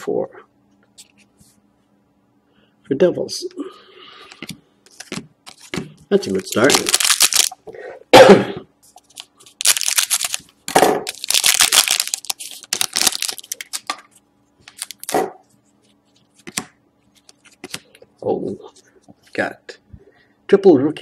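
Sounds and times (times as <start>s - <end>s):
foil wrapper crinkling and tearing: 5.0s - 7.6s, 9.0s - 15.2s.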